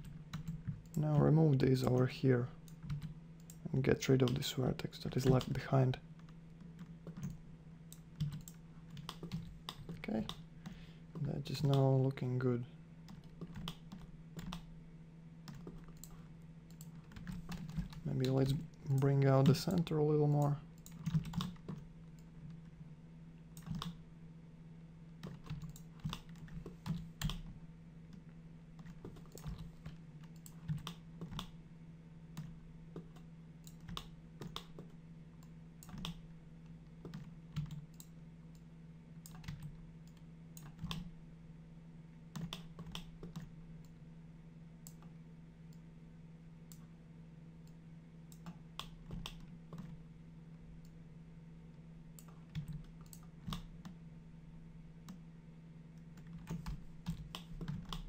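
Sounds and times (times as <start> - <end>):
faint low hum: 0.0 - 58.0
keyboard and mouse clicking: 6.2 - 11.9, 13.1 - 14.7, 15.5 - 22.3, 23.6 - 24.0, 25.2 - 27.5, 32.4 - 36.2, 42.4 - 43.5, 48.3 - 50.0, 52.2 - 54.0, 56.2 - 58.0.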